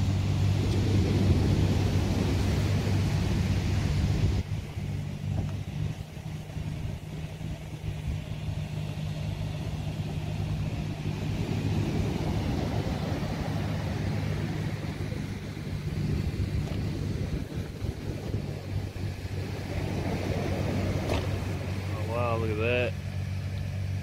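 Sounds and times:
wind on microphone: 0.0 - 22.1
surf breaking: 0.0 - 22.9
diesel engine humming: 0.0 - 24.0.

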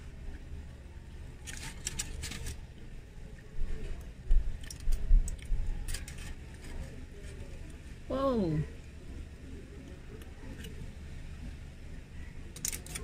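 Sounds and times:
foil crinkling: 1.4 - 2.6, 12.5 - 13.0.

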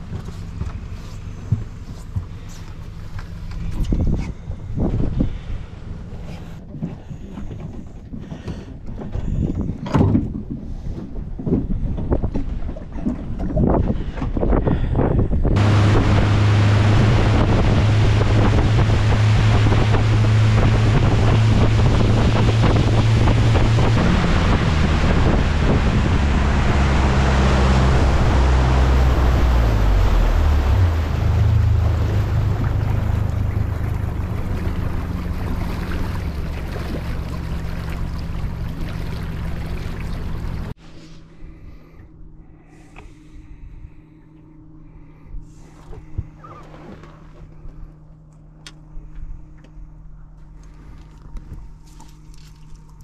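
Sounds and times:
outboard motor running: 0.0 - 53.0
wind on microphone: 3.6 - 5.6, 9.1 - 40.7
water rushing past hull: 15.5 - 40.8.

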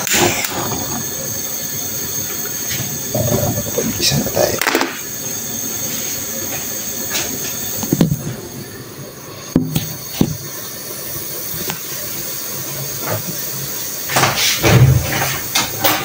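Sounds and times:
food sizzling in a wok: 0.0 - 16.0.

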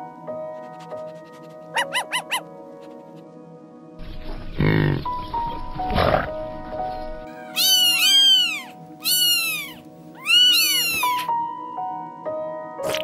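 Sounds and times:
background music: 0.0 - 13.0
cat meowing: 7.5 - 11.3.

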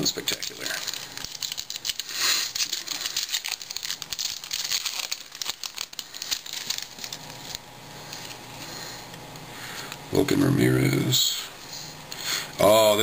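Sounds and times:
foil wrapper crinkling and tearing: 0.0 - 8.4.

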